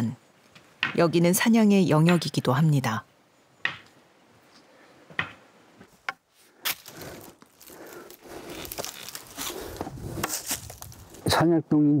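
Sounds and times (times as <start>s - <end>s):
footsteps on rocky ground: 6.6s - 11.3s
scraping and rustling: 6.7s - 11.3s.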